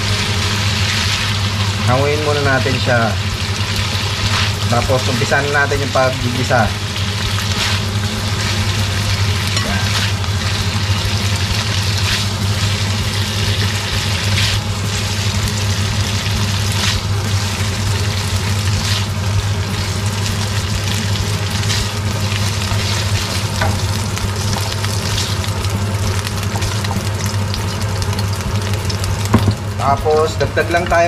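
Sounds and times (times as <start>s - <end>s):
low hum: 0.0s - 31.0s
meat sizzling in a wok: 0.0s - 31.0s.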